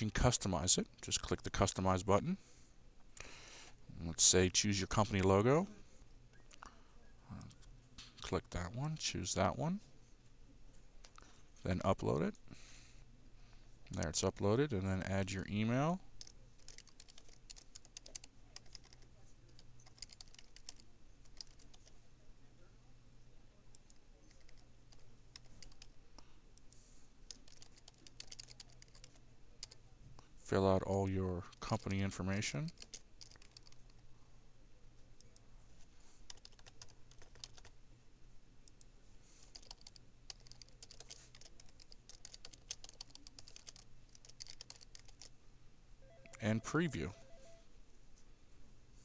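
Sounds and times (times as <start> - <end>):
faint keyboard typing: 10.7 - 11.4, 16.1 - 22.0, 23.7 - 30.3, 31.6 - 34.1, 35.2 - 37.8, 38.6 - 45.4.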